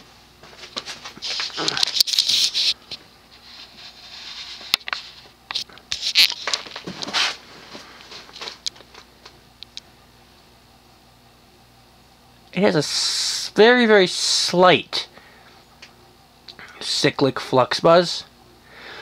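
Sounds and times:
faint ceiling fan hum: 0.0 - 19.0
handling rustling and scraping: 0.4 - 9.1.

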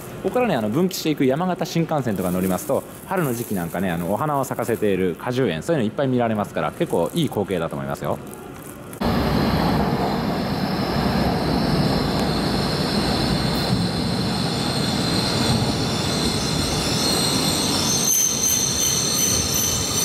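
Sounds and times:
train rushing into platform: 9.0 - 20.0
brake and wheel squeal: 13.6 - 20.0.

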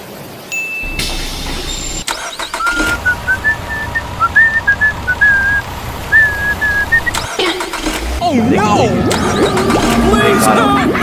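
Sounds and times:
low engine rumble: 0.9 - 8.2
person whistling a tune: 2.6 - 7.2.

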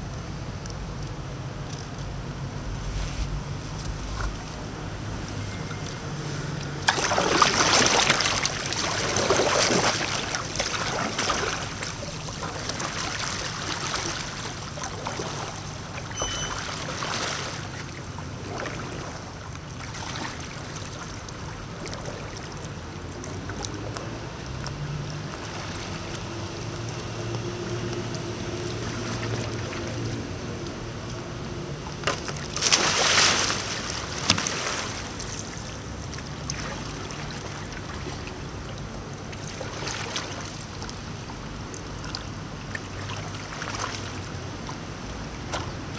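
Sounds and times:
river water lapping: 0.0 - 45.9
paddle splashing: 5.7 - 45.9
kayak capsizing splash: 5.8 - 23.6, 24.2 - 38.0, 39.2 - 41.3.

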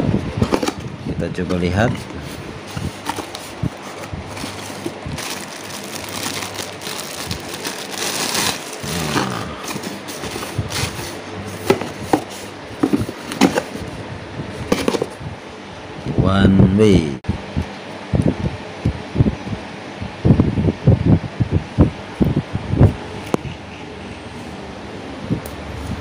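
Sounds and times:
cardboard flaps rustling: 1.6 - 13.9, 14.6 - 15.2
plastic wrapping crinkling: 2.7 - 11.1.

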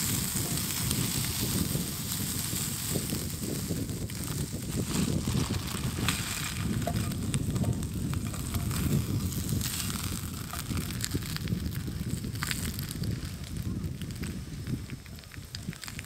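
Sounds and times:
meat sizzling in a frying pan: 0.0 - 16.0
plastic wrapper crinkling: 0.0 - 16.0
tongs clicking: 6.6 - 9.0.

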